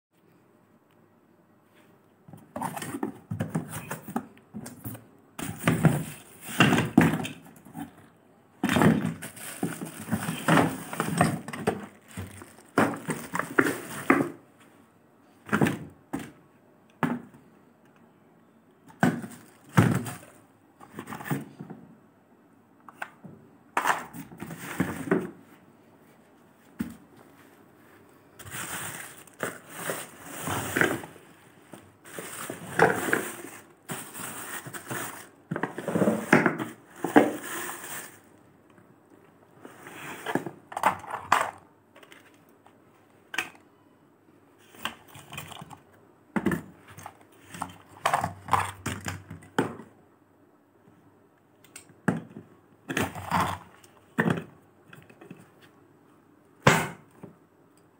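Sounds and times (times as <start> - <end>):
plastic wrapping crinkling: 8.8 - 14.4, 28.4 - 31.0, 32.1 - 35.4.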